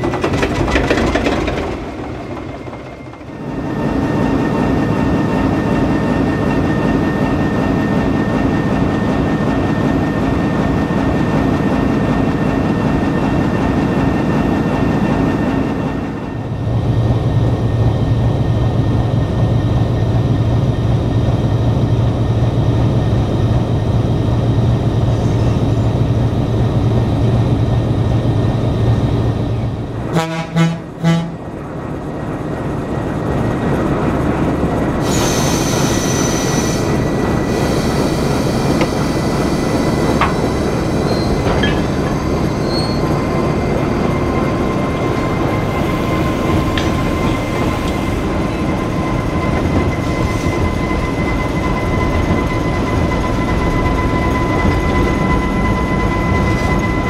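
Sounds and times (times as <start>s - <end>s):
diesel locomotive engine: 0.0s - 57.0s
locomotive horn toots: 30.1s - 31.4s.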